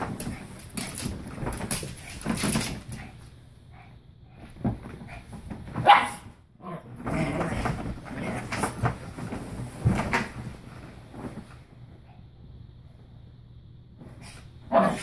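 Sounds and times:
dog barking: 5.8 - 6.3, 14.7 - 15.0.

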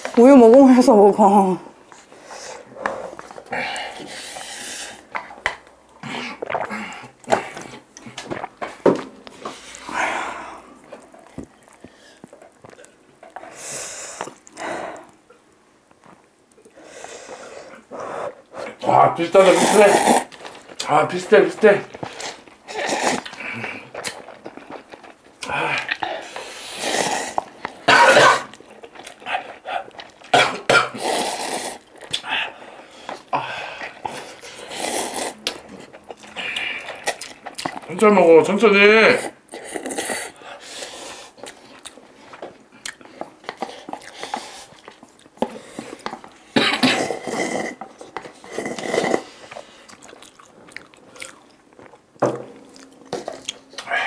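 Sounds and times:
noisy breathing: 2.0 - 5.1, 9.3 - 10.9, 13.4 - 15.2, 16.6 - 18.8, 25.5 - 27.8, 39.6 - 41.4
people slurping noodles: 2.0 - 15.2, 16.6 - 38.1, 39.0 - 51.4
person coughing: 27.9 - 28.5, 30.4 - 31.0, 46.6 - 47.2.

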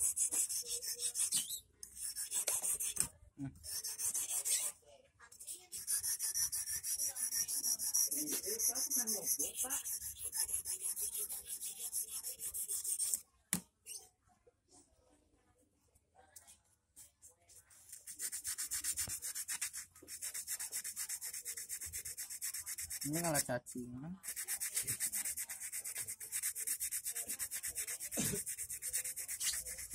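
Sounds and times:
rasping file strokes on wire: 0.0 - 13.2, 17.9 - 23.5, 24.2 - 29.9.

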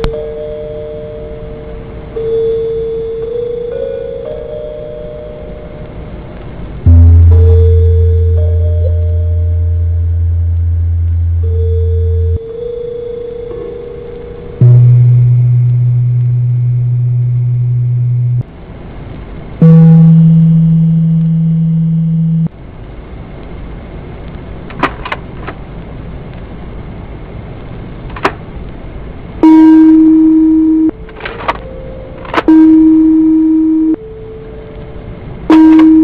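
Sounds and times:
low buzzing tone: 6.7 - 18.7, 19.4 - 22.6, 29.4 - 36.0
higher buzzing tones: 6.8 - 18.5, 19.6 - 22.5, 29.4 - 36.0
steady hiss: 14.0 - 32.2.

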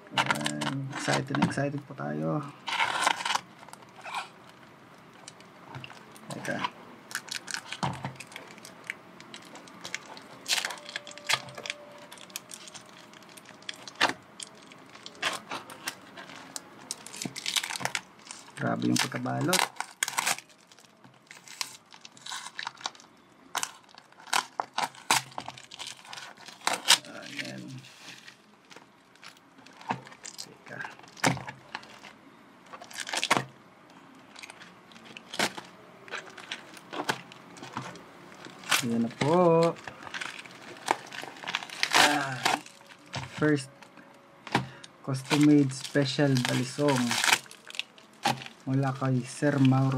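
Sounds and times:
paper and tape crinkling: 0.1 - 1.7, 2.6 - 33.5, 34.3 - 49.9
paper crackling and ripping: 2.6 - 4.3, 9.4 - 33.5, 34.3 - 43.7, 44.5 - 49.9
paper rustling: 44.5 - 49.9.

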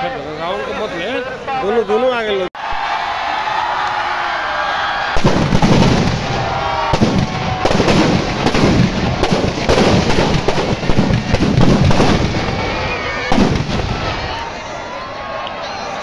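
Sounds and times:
firecrackers banging rapidly: 5.2 - 14.5.

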